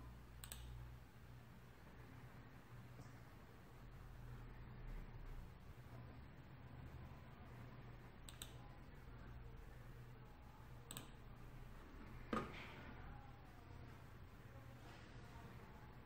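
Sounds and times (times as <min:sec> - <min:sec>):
low steady hum: 0:00.0 - 0:16.0
faint clicks: 0:00.4 - 0:00.8, 0:08.2 - 0:08.7, 0:10.9 - 0:11.2.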